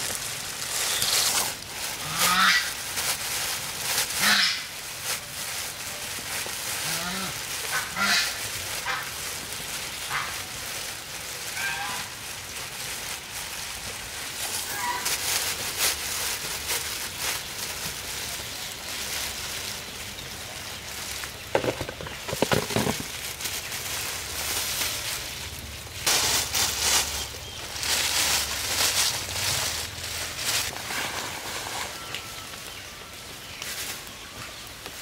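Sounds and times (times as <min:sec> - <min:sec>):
rain hissing: 0:00.0 - 0:35.0
fowl calling: 0:02.0 - 0:02.8, 0:04.2 - 0:04.7, 0:06.8 - 0:09.1, 0:11.5 - 0:12.2, 0:14.5 - 0:15.2.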